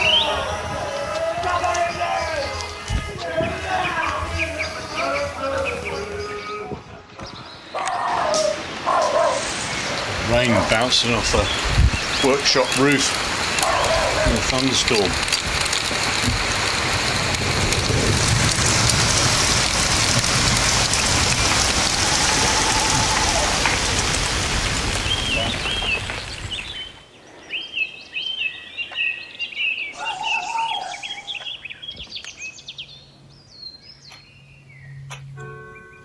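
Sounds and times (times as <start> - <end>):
heavy rain on a roof: 0.0 - 6.0, 7.8 - 27.1
birds singing: 0.0 - 15.2, 24.9 - 36.0.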